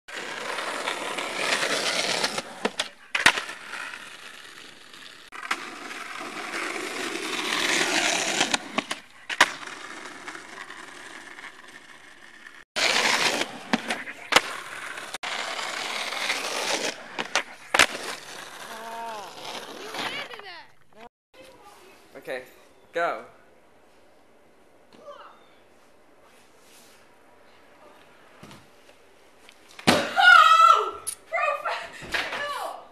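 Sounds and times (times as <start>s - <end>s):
skateboard clacking on road: 0.1s - 18.7s, 19.3s - 20.7s
skateboard wheels rolling on asphalt: 0.1s - 21.7s.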